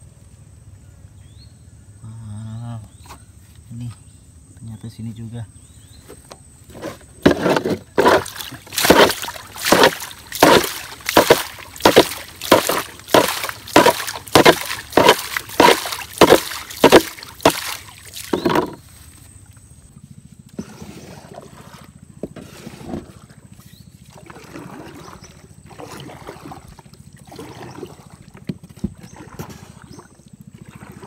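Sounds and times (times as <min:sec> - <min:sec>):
water scooping and splashing: 0:07.2 - 0:19.8, 0:20.6 - 0:31.0.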